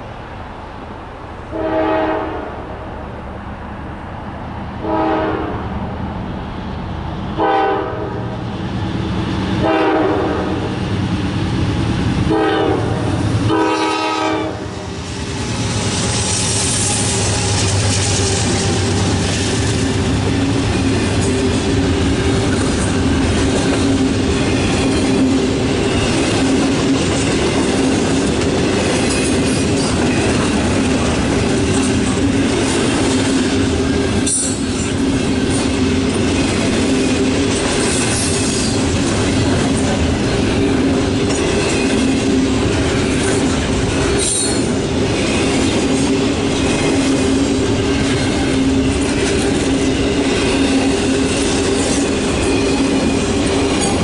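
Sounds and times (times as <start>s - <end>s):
freight train wheels on rails: 0.0s - 54.0s.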